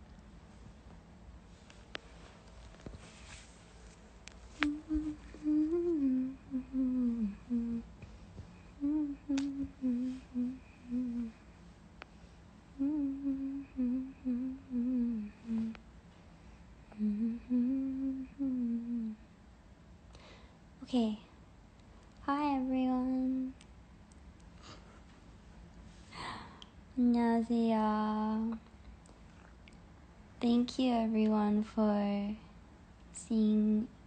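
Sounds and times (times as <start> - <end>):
woman humming: 4.6 - 8.0, 8.7 - 11.4, 12.7 - 15.8, 16.9 - 19.2, 23.0 - 23.6.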